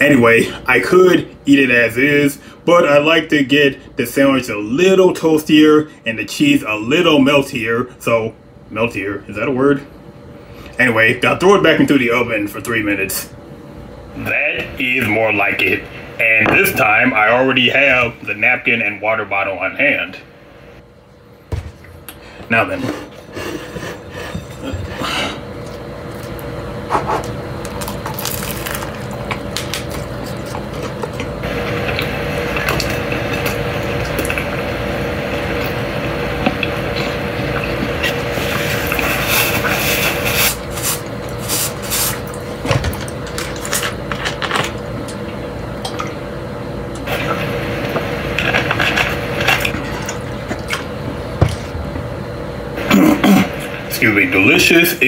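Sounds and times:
steady hum: 0:00.0 - 0:55.0
man chewing food: 0:23.0 - 0:34.6, 0:35.3 - 0:46.2, 0:48.3 - 0:52.0.

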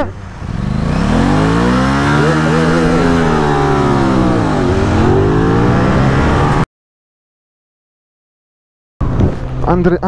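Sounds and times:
heavy wind rush: 0:00.0 - 0:06.6
motorcycle engine revving: 0:00.0 - 0:06.7.

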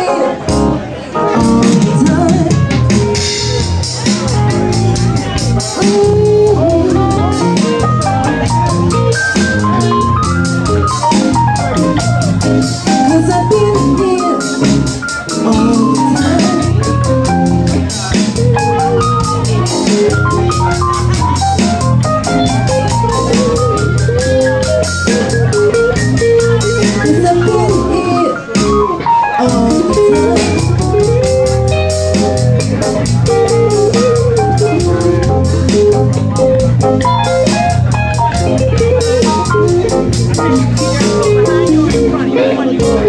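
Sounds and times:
woman singing into a microphone: 0:00.0 - 0:00.5, 0:01.3 - 0:02.9, 0:05.8 - 0:07.4, 0:13.1 - 0:14.7, 0:15.4 - 0:17.0, 0:27.0 - 0:31.2
drum kit cymbal beat: 0:00.0 - 0:43.0
electric bass: 0:00.0 - 0:43.0
electric guitar: 0:00.0 - 0:43.0
organ-like keyboard chords: 0:00.0 - 0:43.0.

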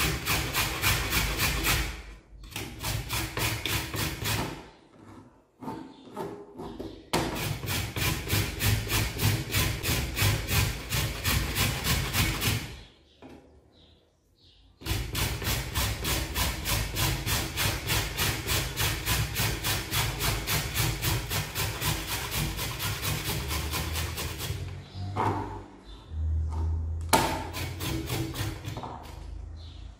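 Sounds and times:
seed grated on metal grater: 0:14.9 - 0:24.6.

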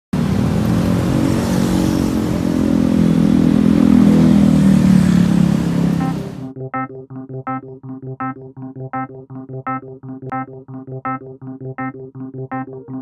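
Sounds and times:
motorcycle engine running: 0:00.2 - 0:06.5
street traffic: 0:00.2 - 0:06.5.

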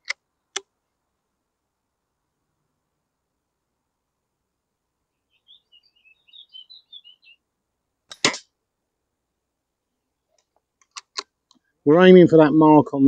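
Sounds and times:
small bird chirping: 0:05.1 - 0:07.4.

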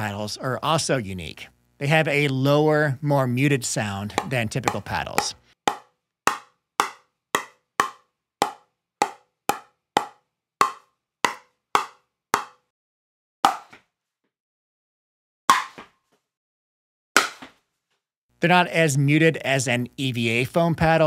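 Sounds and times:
ball bouncing on paddle: 0:04.1 - 0:12.6, 0:13.5 - 0:13.9.

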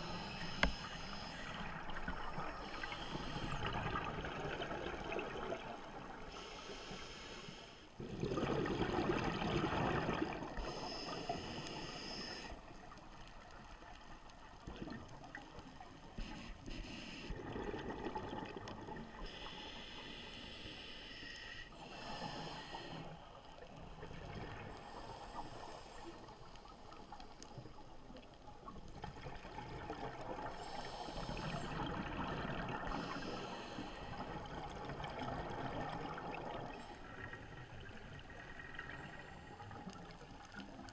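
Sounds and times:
scuba regulator hissing inhalations: 0:00.0 - 0:01.7, 0:10.6 - 0:12.6, 0:16.2 - 0:17.4, 0:19.2 - 0:23.3, 0:32.9 - 0:34.4
bubbling exhalations underwater: 0:08.0 - 0:10.6.

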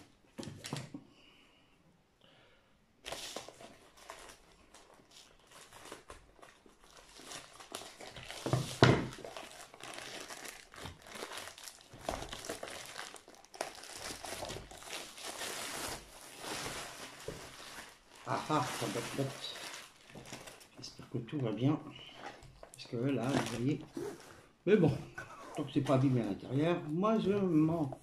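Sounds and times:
plastic bag crinkling and rustling: 0:03.0 - 0:24.5, 0:25.6 - 0:28.0.

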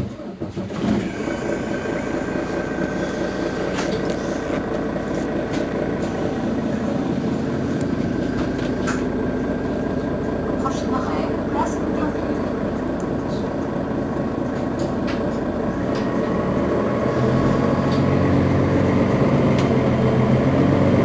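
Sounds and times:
bus diesel engine idling: 0:00.0 - 0:21.0
steady high whine: 0:01.1 - 0:16.3.

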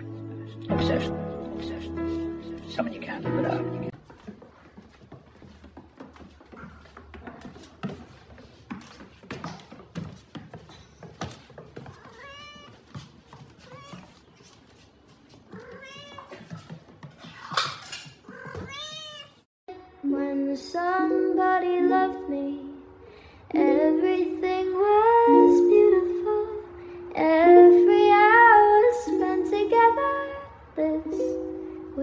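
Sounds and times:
light knocks and rustles: 0:04.0 - 0:19.2
cat meowing: 0:12.0 - 0:12.8, 0:13.6 - 0:14.1, 0:15.5 - 0:16.4, 0:18.2 - 0:19.4.

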